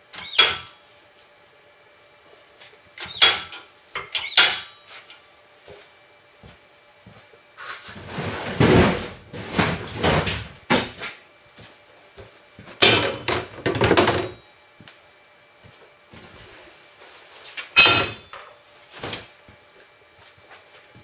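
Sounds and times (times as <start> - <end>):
objects scraping and knocking: 7.6 - 10.4.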